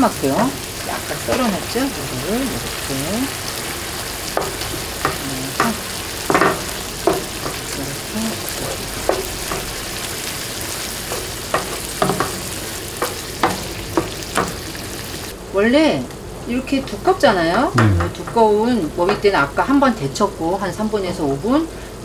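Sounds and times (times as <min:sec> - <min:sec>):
frying pan sizzling: 0:00.0 - 0:21.7
spatula scraping and tapping pan: 0:04.3 - 0:09.8, 0:10.8 - 0:14.6.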